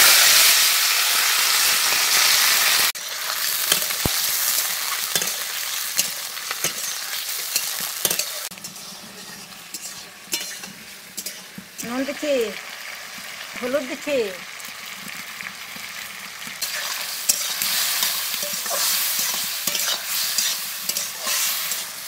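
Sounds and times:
food sizzling in oil: 0:00.0 - 0:22.0
metal spatula scraping and clinking: 0:03.6 - 0:11.9, 0:16.6 - 0:22.0.

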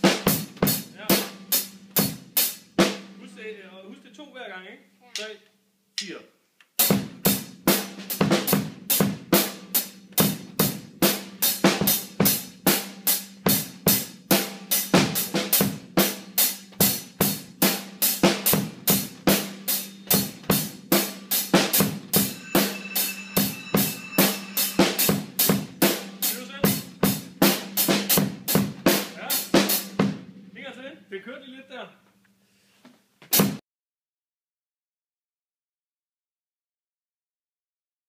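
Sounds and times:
drum kit steady beat: 0:00.0 - 0:03.3, 0:06.8 - 0:30.8, 0:33.3 - 0:33.6
low drum ring: 0:21.6 - 0:27.8.

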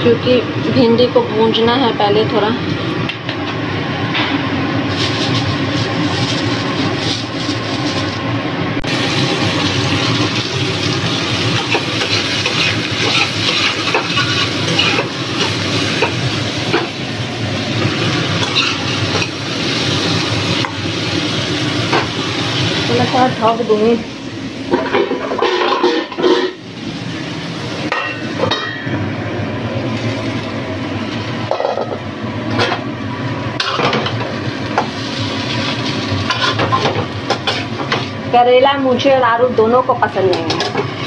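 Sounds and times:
vegetables sizzling in hot oil: 0:04.6 - 0:41.0
spatula scraping a pan: 0:11.7 - 0:16.1, 0:18.4 - 0:19.3, 0:25.3 - 0:26.6.

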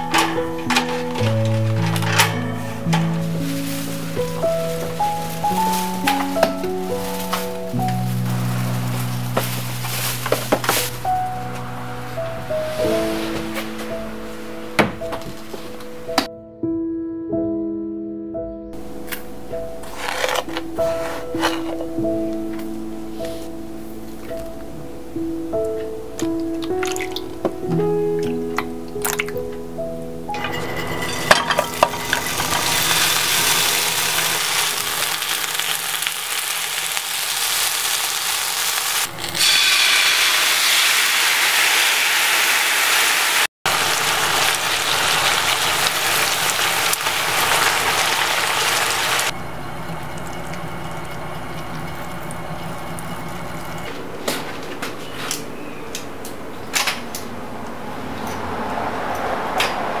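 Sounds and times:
lotus root sizzling in hot oil: 0:31.9 - 0:49.4.

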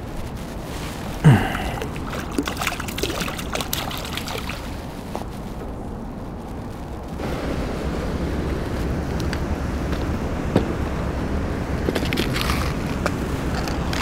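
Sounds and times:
steady rushing noise: 0:00.0 - 0:14.0
fish splashing in water: 0:01.3 - 0:05.0.

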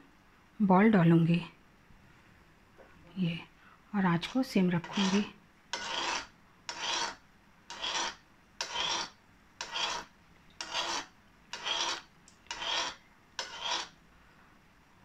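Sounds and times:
metal spoon scraping metal pan: 0:04.2 - 0:14.0.

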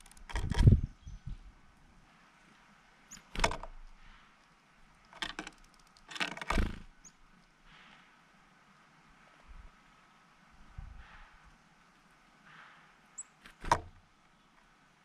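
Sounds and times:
bird wings fluttering: 0:06.5 - 0:06.9.

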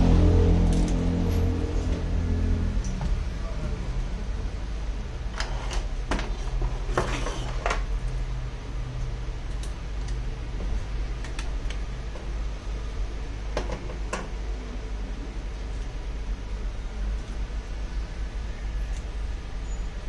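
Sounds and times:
low hum: 0:00.0 - 0:06.7.

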